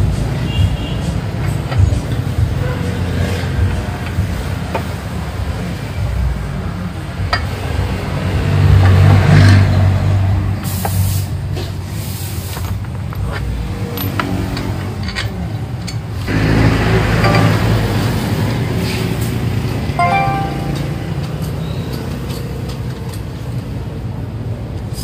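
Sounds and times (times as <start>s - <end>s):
hiss: 10.6s - 12.7s.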